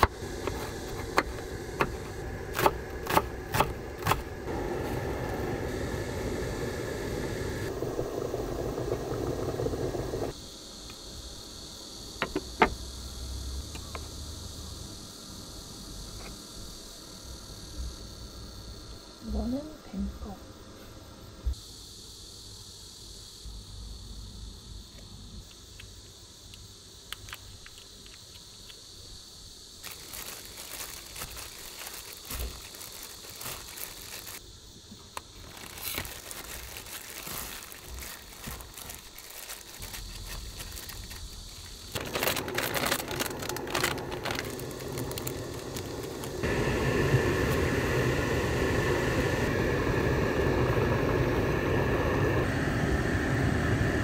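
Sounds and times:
plastic glove crinkling: 29.8s - 34.4s, 35.3s - 46.4s
loud steady noise: 35.6s - 54.0s.

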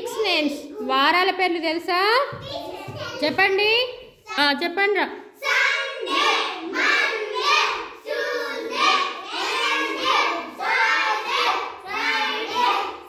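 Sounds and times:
children chanting: 5.4s - 13.0s.

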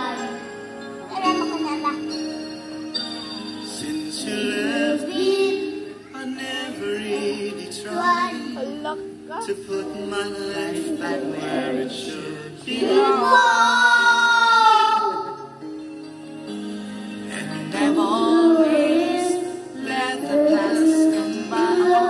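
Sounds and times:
music backing track: 0.0s - 22.0s
boy singing through a speaker: 4.1s - 15.4s, 17.3s - 22.0s
woman singing: 17.6s - 22.0s.

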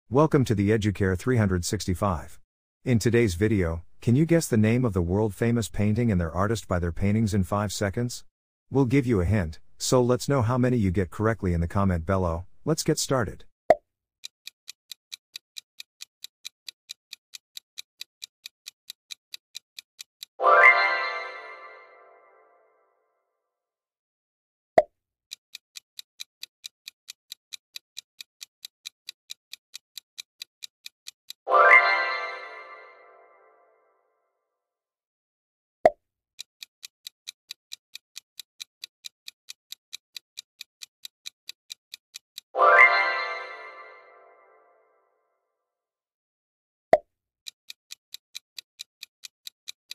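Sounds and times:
clock ticking: 14.2s - 20.4s, 25.3s - 31.4s, 36.4s - 43.2s, 47.4s - 49.9s
bright ringing chime: 31.5s - 33.6s, 42.6s - 44.7s.

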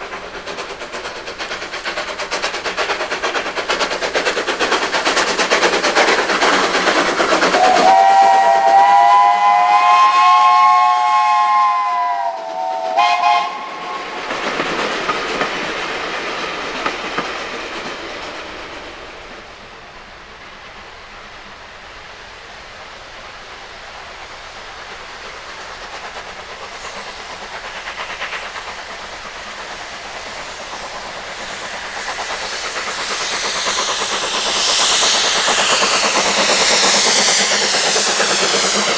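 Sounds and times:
steam locomotive chuffing: 0.0s - 38.9s
steam whistle blast: 7.6s - 14.1s.

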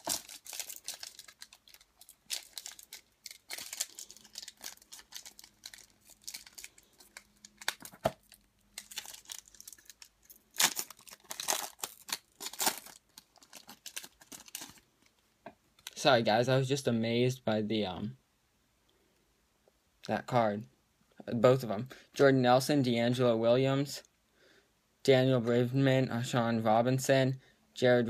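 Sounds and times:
foil wrappers crinkling and tearing: 0.0s - 14.9s.

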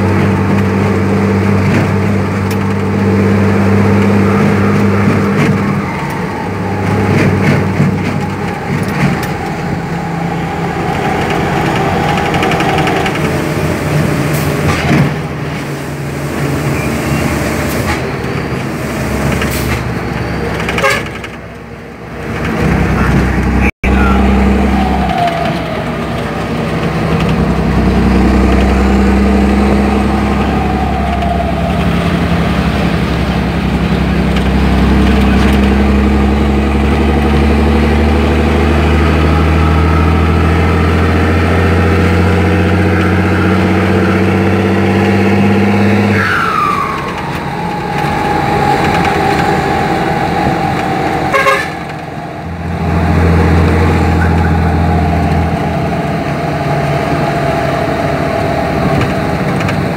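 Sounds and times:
truck diesel engine: 0.0s - 59.9s
turbo whistle: 46.1s - 51.9s.

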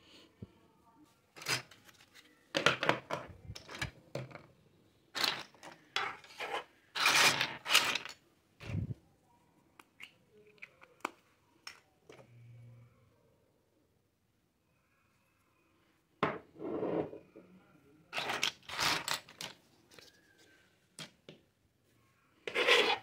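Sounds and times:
plastic toy pieces clattering: 5.2s - 8.2s, 18.1s - 20.1s.

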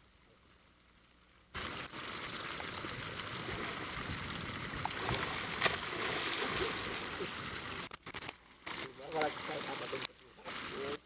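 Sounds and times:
water splashing and churning: 1.6s - 8.0s.

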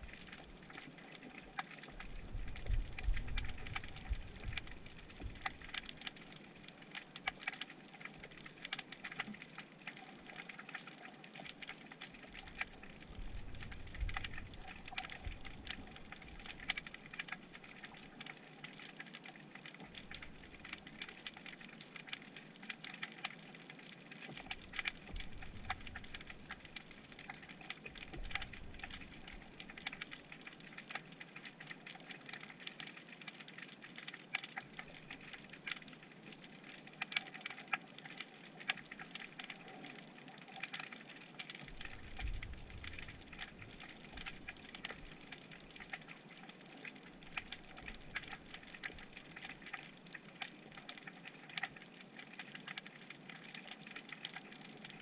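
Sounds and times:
low underwater rumbles: 1.9s - 6.0s, 12.4s - 18.1s, 24.5s - 30.4s, 41.6s - 45.8s.

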